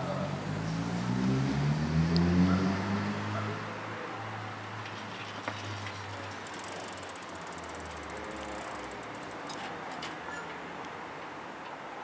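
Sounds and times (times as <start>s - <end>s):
bicycle freewheel hub clicking: 6.4s - 9.6s.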